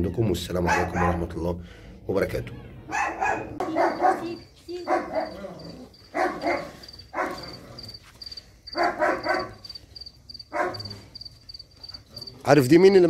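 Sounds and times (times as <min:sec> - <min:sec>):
dogs barking: 0:00.5 - 0:01.4, 0:02.6 - 0:13.0
cricket chirping: 0:03.6 - 0:13.0.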